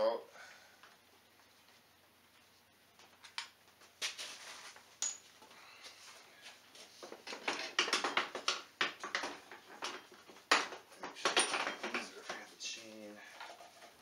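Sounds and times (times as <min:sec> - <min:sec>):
metal tools clinking and rattling: 0:05.0 - 0:05.3, 0:07.2 - 0:12.5.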